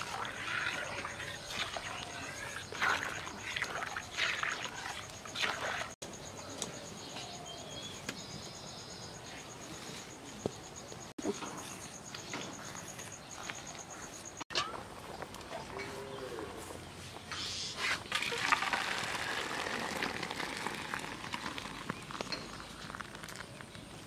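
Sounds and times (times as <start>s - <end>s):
insect chirping: 0.0s - 14.5s.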